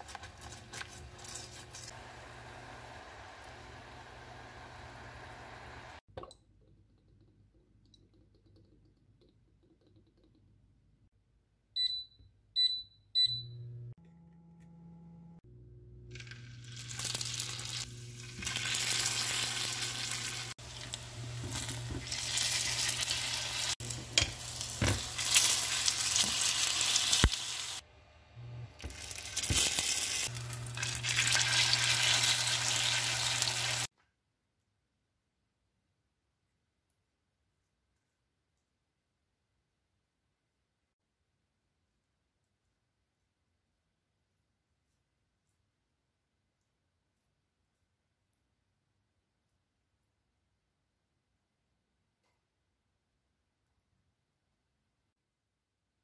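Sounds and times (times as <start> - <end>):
rice cakes sizzling in oil: 16.2 - 27.8, 28.9 - 33.9.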